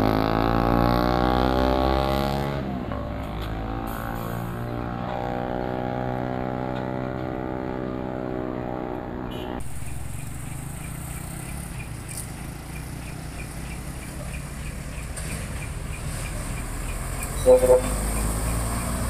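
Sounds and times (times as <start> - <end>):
traffic noise: 0.0 - 19.0
truck diesel engine drone: 0.0 - 19.0
approaching truck engine rumble: 2.6 - 19.0.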